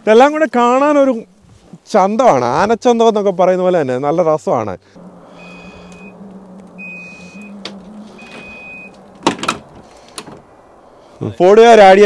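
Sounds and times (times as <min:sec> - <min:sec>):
low steady hum: 0:04.9 - 0:11.1
electronic chime beeping: 0:05.4 - 0:06.2, 0:06.8 - 0:07.5, 0:08.2 - 0:09.0.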